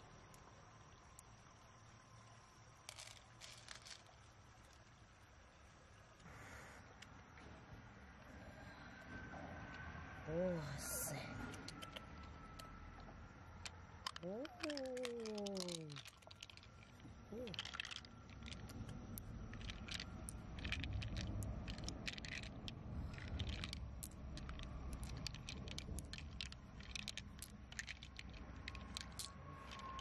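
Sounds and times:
pearls clicking together: 0:02.8 - 0:04.3, 0:11.5 - 0:30.0.

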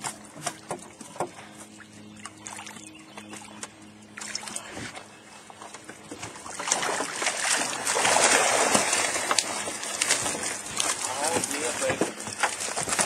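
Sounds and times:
water streaming off a net: 0:06.4 - 0:13.0.

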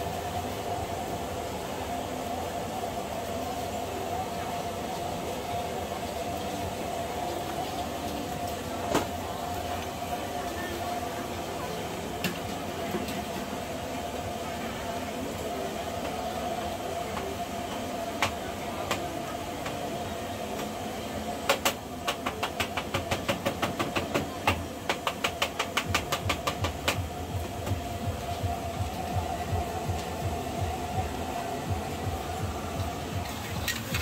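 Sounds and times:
market chatter: 0:00.0 - 0:34.0
steady hum: 0:25.8 - 0:34.0.

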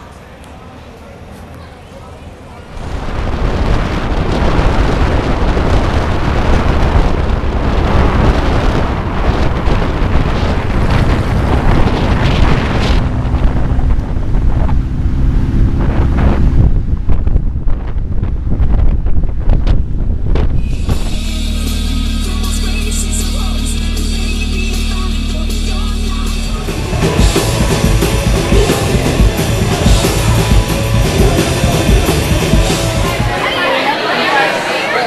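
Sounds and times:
wind buffeting microphone: 0:02.7 - 0:21.5
car engine rumble: 0:02.7 - 0:33.3.

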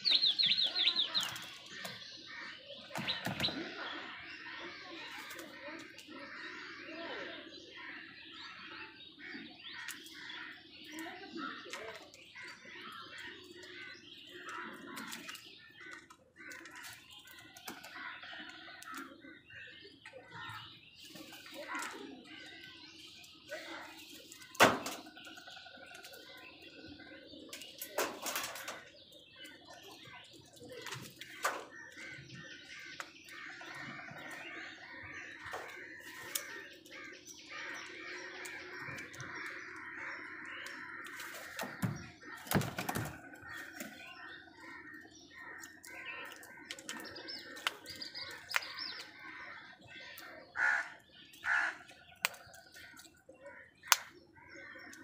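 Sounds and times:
faint bird calls: 0:00.0 - 0:55.0
crows cawing: 0:31.3 - 0:55.0.

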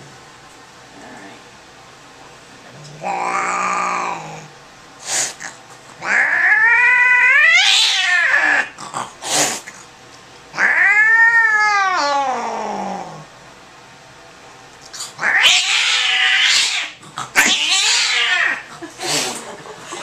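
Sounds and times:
cat yowling: 0:03.0 - 0:04.5, 0:06.0 - 0:08.8, 0:10.5 - 0:13.2, 0:15.2 - 0:18.7.

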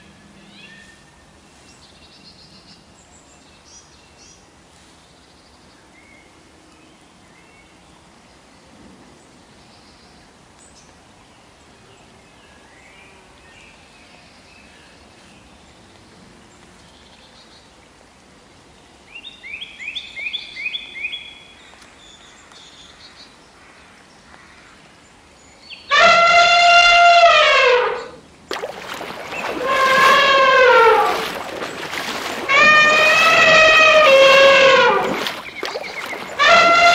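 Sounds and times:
elephant trumpeting: 0:28.9 - 0:36.9
bird chirping: 0:30.7 - 0:36.8.

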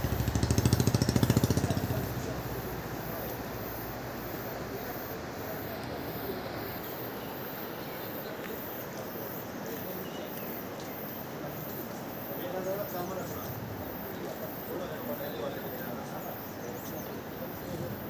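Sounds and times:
outdoor background hiss: 0:00.0 - 0:18.0.

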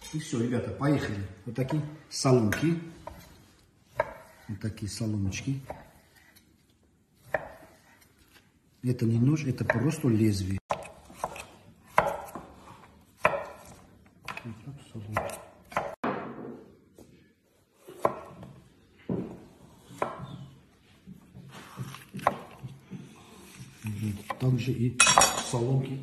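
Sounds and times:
knife chopping on wooden board: 0:02.5 - 0:04.5, 0:05.1 - 0:06.5, 0:07.2 - 0:08.3, 0:09.6 - 0:16.6, 0:17.8 - 0:20.5, 0:21.1 - 0:24.5.

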